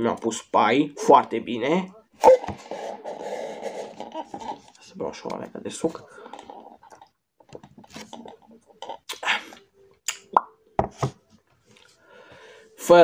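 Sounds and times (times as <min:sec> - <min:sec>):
mouth pops and clicks: 0:10.0 - 0:10.6.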